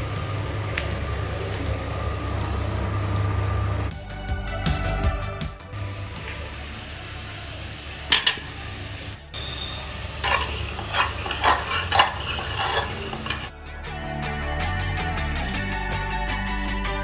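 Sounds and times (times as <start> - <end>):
low sizzle of frying: 0.0 - 3.9, 5.8 - 13.5
steel spoon clinking in metal pot: 8.1 - 8.8, 9.4 - 13.5.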